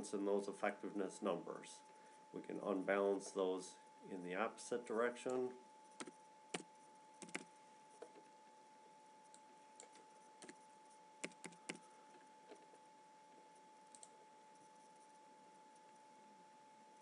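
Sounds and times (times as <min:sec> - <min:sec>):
faint steady tone: 0:00.0 - 0:17.0
keyboard keystrokes: 0:06.0 - 0:07.5, 0:11.2 - 0:11.8.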